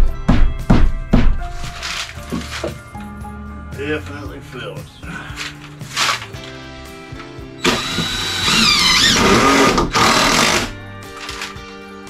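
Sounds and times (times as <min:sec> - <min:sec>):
background music: 0:00.0 - 0:12.0
cordless drill driving screws: 0:07.6 - 0:11.5.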